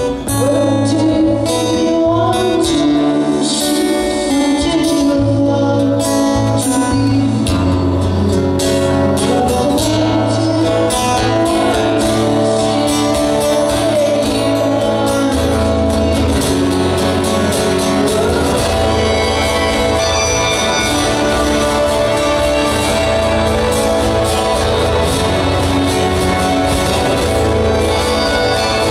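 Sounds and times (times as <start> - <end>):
man singing: 0.0 - 28.9
strummed acoustic guitar: 0.0 - 28.9
low bass notes: 4.3 - 28.9.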